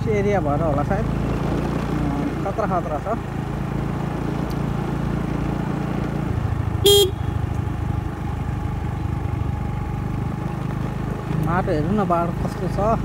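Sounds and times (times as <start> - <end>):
motorbike engine running: 0.0 - 13.0
short horn beep: 6.8 - 7.3.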